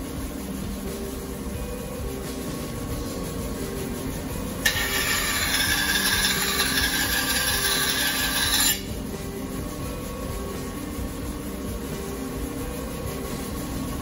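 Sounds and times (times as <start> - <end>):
grinding wheel hum: 0.0 - 14.0
blade grinding hiss: 4.6 - 9.1.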